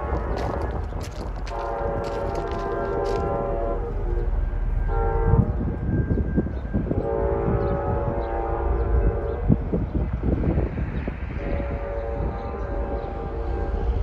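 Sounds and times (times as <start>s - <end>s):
low rumble: 0.0s - 14.0s
distant locomotive air horn: 1.4s - 9.8s, 11.4s - 14.0s.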